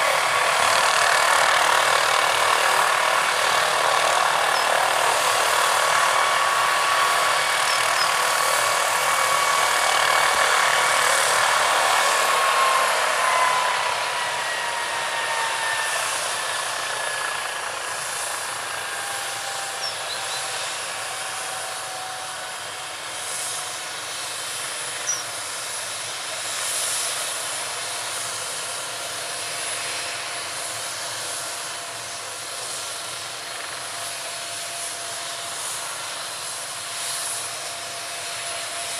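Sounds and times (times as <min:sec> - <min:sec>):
helicopter engine whining: 0:00.0 - 0:38.9.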